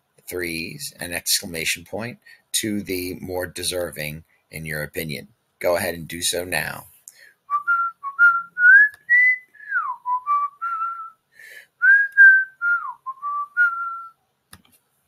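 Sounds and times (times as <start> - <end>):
person whistling a tune: 7.5 - 11.2, 11.8 - 14.2.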